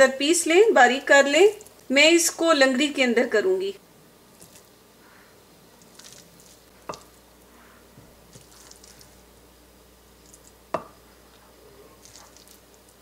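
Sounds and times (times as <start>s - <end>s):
pestle mashing in wooden mortar: 5.8s - 7.2s
pestle hard thuds: 10.7s - 11.0s.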